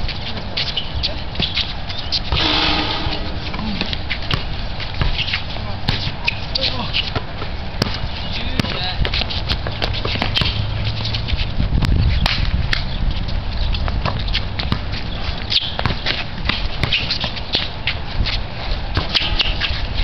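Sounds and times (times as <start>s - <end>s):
sneakers on concrete: 0.2s - 19.9s
basketball bouncing: 2.3s - 5.2s, 8.6s - 8.8s
low rumble: 2.4s - 4.1s.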